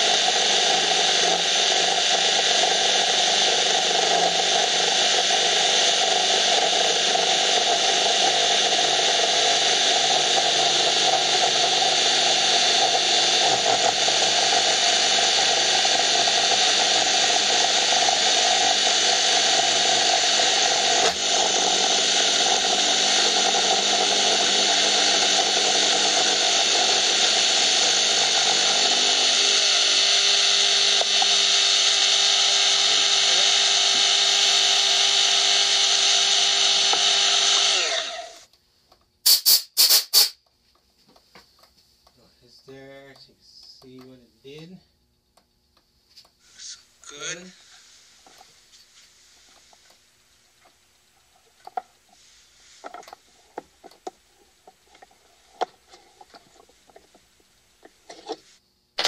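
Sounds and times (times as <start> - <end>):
milling machine cutting plastic: 0.1 - 38.4.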